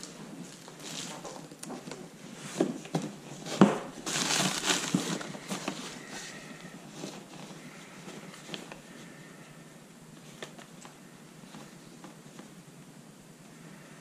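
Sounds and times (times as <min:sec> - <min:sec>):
packing paper rustling: 0:00.0 - 0:09.2.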